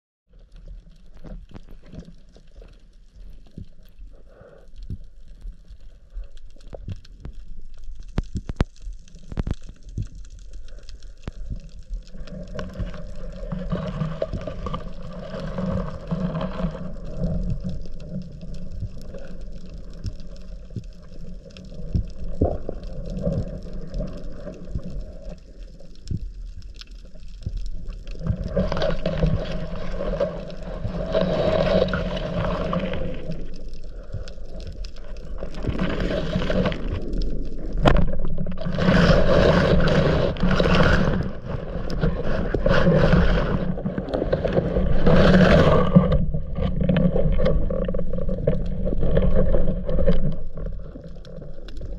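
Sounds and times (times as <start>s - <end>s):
muffled underwater water rushing: 0.3s - 51.9s
faint clicks: 0.6s - 15.3s.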